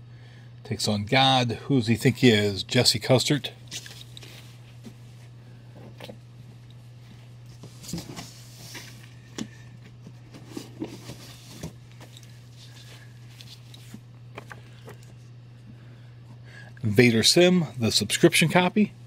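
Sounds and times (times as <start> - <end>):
steady low hum: 0.0 - 19.0
paper rustling: 3.7 - 5.0, 7.5 - 9.1, 10.2 - 15.1.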